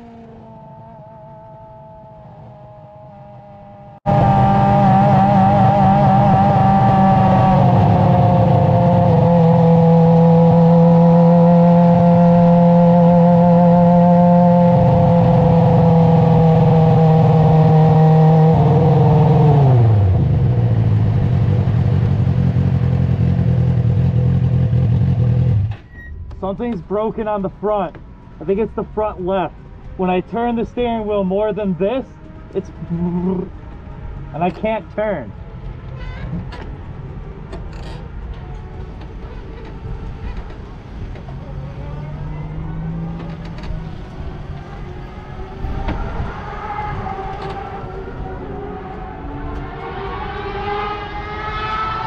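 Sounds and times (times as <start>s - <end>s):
race car engine running: 0.0s - 25.8s.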